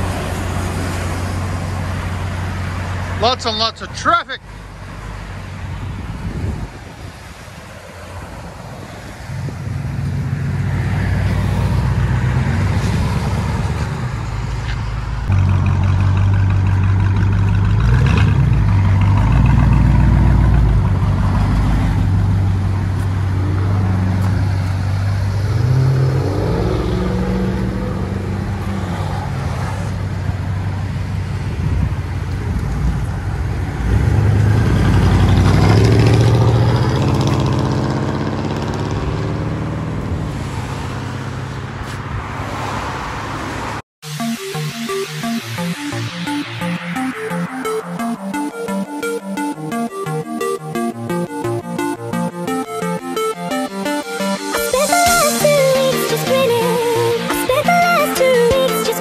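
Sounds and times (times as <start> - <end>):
vpiped car engine rumbling: 0.0 - 42.3.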